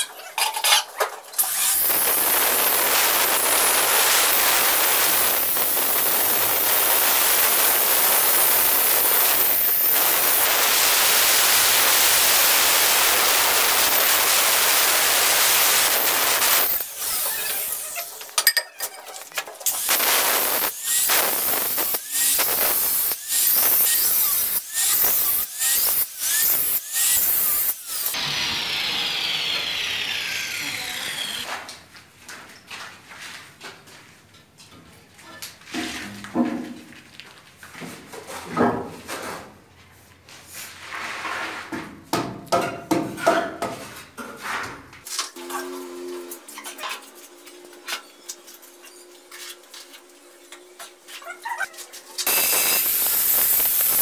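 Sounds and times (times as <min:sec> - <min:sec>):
stone cutter grinding stone: 0:00.5 - 0:31.5, 0:52.2 - 0:54.0.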